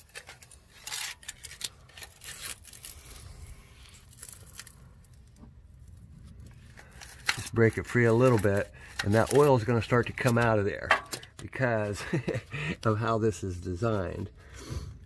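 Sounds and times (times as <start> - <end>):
filter wrench clicks and scrapes: 0.0 - 3.0, 6.4 - 11.6.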